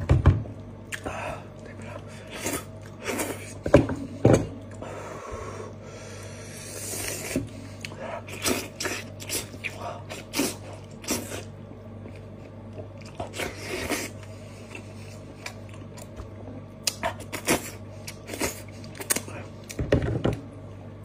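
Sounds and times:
steady low hum: 0.0s - 21.0s
wet chewing and sucking: 6.7s - 16.2s.

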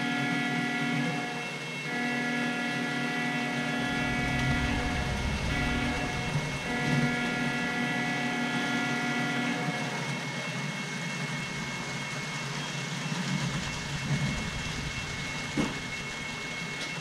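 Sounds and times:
model train running on track: 0.0s - 17.0s
steady chord-like tone: 1.9s - 9.7s.

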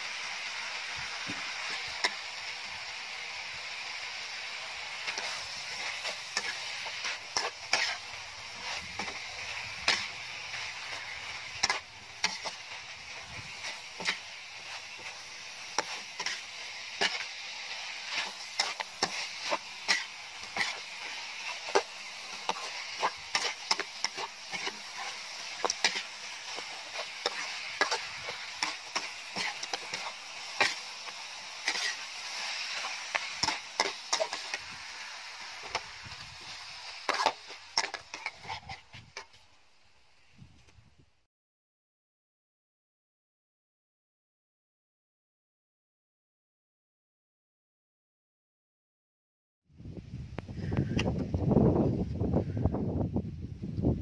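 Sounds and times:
food sizzling in a wok: 0.0s - 41.0s
metal spatula scraping pan: 5.0s - 30.9s, 31.6s - 39.4s.

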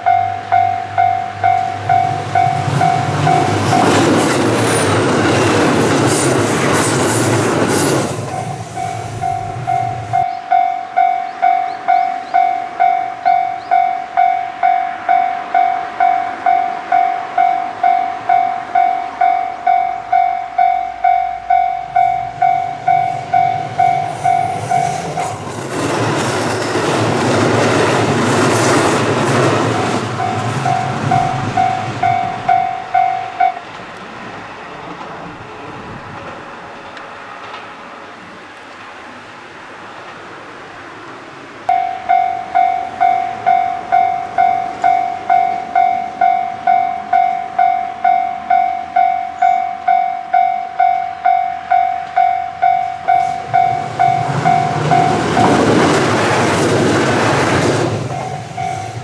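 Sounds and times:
level crossing bell ringing: 0.0s - 4.0s, 8.4s - 25.0s, 29.8s - 33.6s, 41.7s - 55.2s
train rumbling past: 0.0s - 59.0s.

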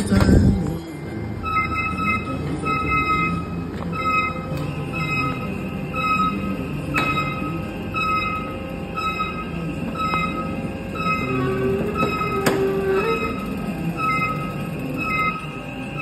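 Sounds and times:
metallic squeak: 7.0s - 16.0s
roller shutter door rattling: 10.4s - 16.0s.

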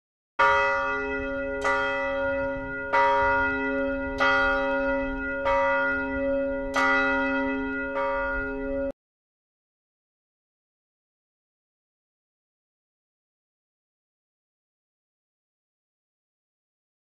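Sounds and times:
church bell tolling: 0.4s - 9.0s.

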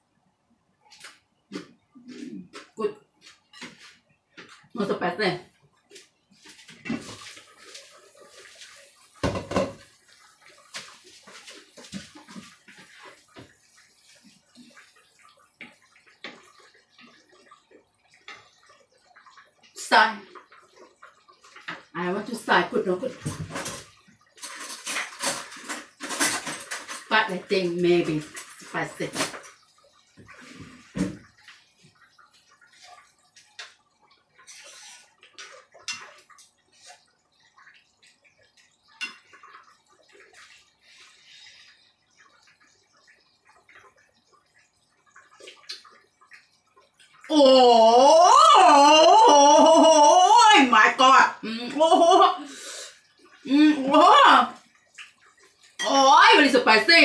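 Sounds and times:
faint liquid sloshing: 0.4s - 57.0s
spoon stirring and scraping in pan: 2.5s - 4.7s, 5.8s - 19.8s, 23.3s - 47.3s
soup sloshing in a pan: 5.8s - 21.9s
wooden spoon knocking pan: 9.2s - 9.8s.

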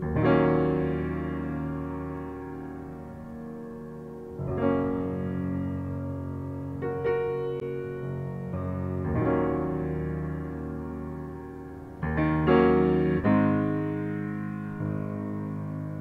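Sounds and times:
slow piano chords: 0.0s - 16.0s.

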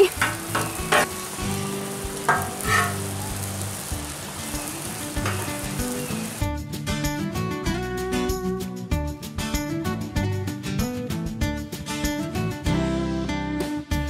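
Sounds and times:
metal spatula scraping griddle: 0.0s - 3.6s
sandwiches sizzling on griddle: 0.0s - 6.4s.

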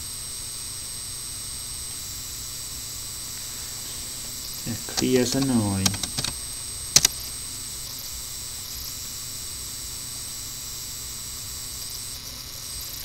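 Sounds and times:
microphone hiss: 1.8s - 9.2s
sharp clicks: 4.7s - 7.3s.

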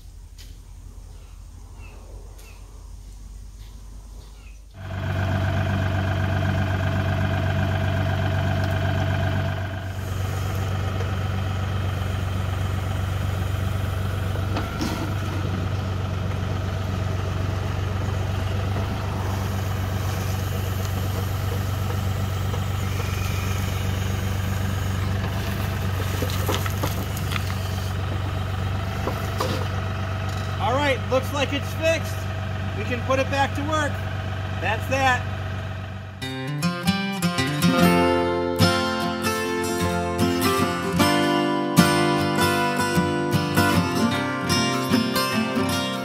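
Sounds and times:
tractor diesel engine running: 4.7s - 46.0s
bucket knocking and scraping gravel: 25.1s - 28.0s.

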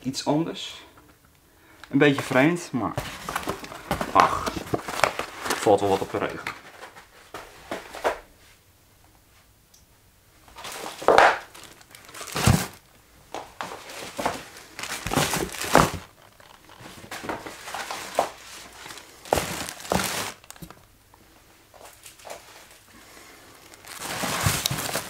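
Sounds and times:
plastic bags crinkling: 2.0s - 7.1s, 10.5s - 21.0s, 21.8s - 25.0s.

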